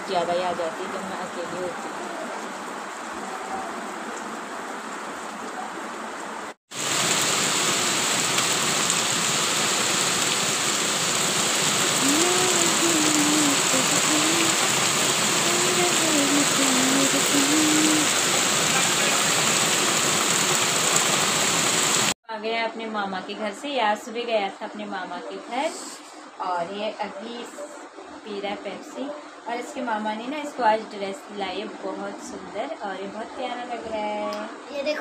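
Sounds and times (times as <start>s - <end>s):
heavy rain on street and rooftops: 0.2s - 22.2s.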